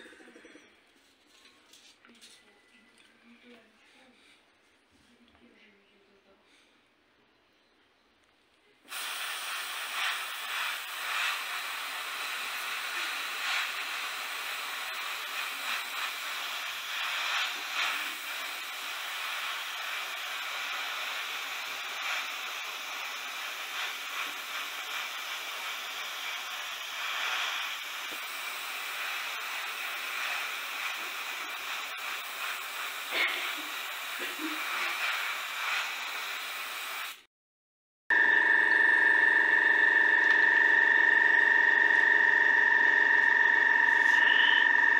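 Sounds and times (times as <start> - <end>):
airbrush hissing: 8.9 - 37.3.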